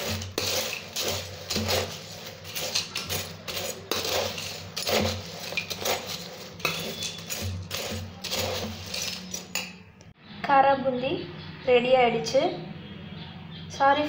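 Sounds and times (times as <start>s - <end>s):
fried snacks rattling: 0.0s - 9.7s
spoon scraping a steel bowl: 0.0s - 9.9s.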